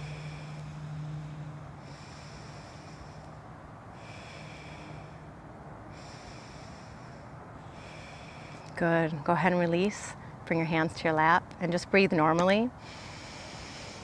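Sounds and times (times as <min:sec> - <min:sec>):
breathing through nostril: 0:00.0 - 0:08.8, 0:12.8 - 0:14.0
steady low hum: 0:00.0 - 0:14.0.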